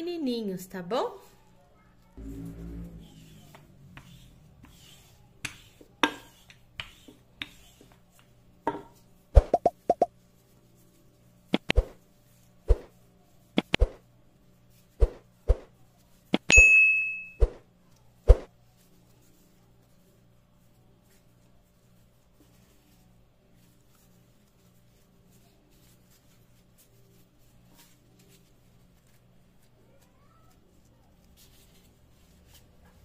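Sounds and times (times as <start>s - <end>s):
bell-like ding: 16.5s - 17.4s.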